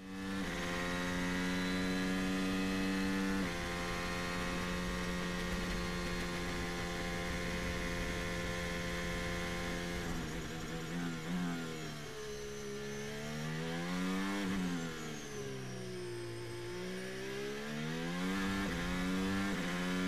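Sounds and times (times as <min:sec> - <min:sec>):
race car engine humming: 0:00.2 - 0:11.4.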